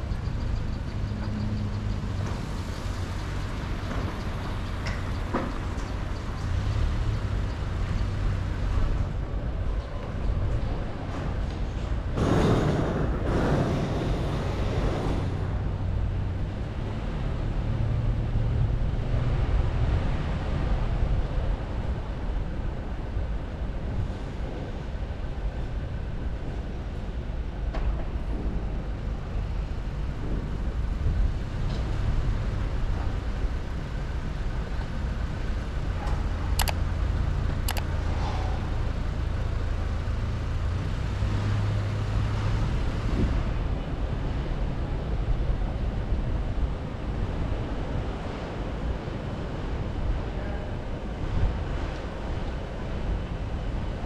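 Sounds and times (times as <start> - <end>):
vehicle rumbling on paved street: 0.0 - 54.0
short clicks: 36.6 - 36.8, 37.6 - 37.9.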